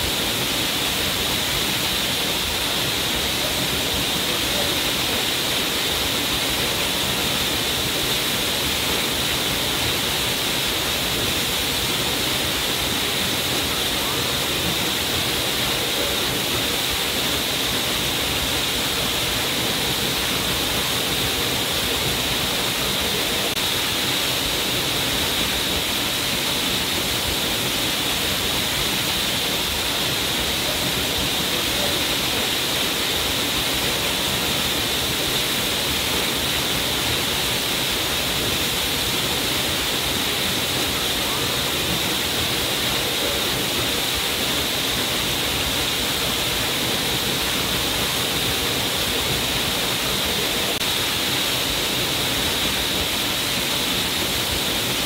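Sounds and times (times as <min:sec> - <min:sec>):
waterfall rushing onto rocks: 0:00.0 - 0:55.0.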